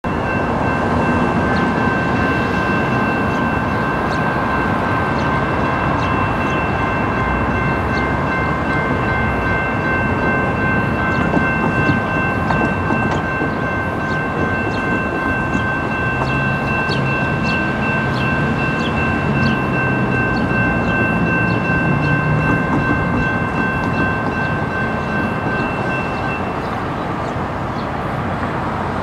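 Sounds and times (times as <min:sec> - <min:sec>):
crossing warning bells ringing: 0:00.0 - 0:29.0
diesel train rumbling: 0:00.0 - 0:29.0.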